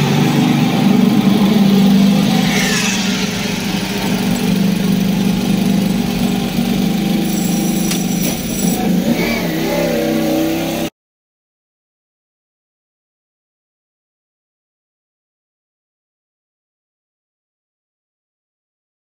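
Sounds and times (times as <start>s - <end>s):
motorcycle engine idling: 0.0s - 10.8s.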